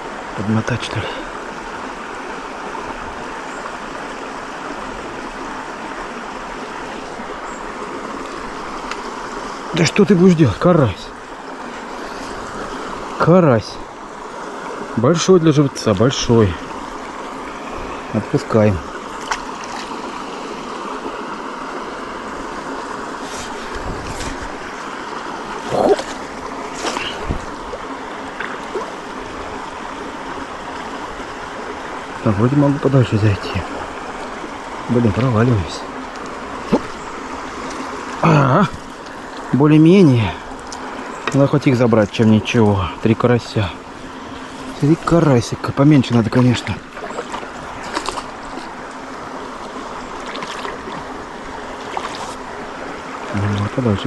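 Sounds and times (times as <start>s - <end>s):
stream water rushing: 0.0s - 54.0s
net splashing into water: 25.6s - 27.7s, 47.0s - 48.8s, 50.2s - 51.1s, 51.8s - 52.4s.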